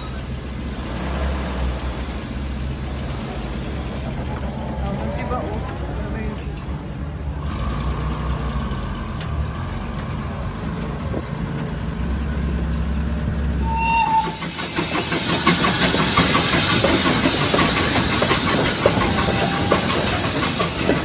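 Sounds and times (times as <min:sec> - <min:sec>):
steam locomotive passing: 0:00.0 - 0:10.6, 0:11.5 - 0:21.0
hissing steam: 0:13.6 - 0:21.0
rhythmic train beat: 0:13.6 - 0:21.0.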